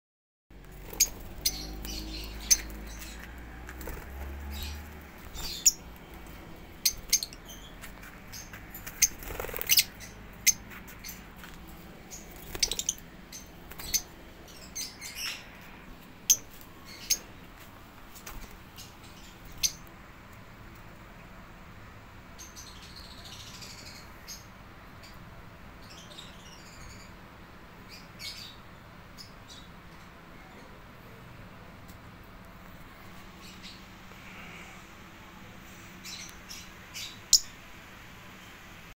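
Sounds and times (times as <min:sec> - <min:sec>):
parrots chirping: 0:00.7 - 0:03.5, 0:04.3 - 0:11.2, 0:12.1 - 0:15.6.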